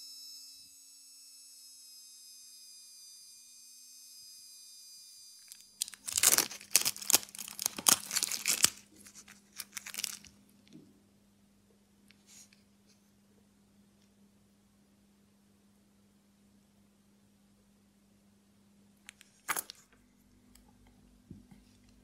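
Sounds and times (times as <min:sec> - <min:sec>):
plastic film crinkling and tearing: 0:05.5 - 0:10.4.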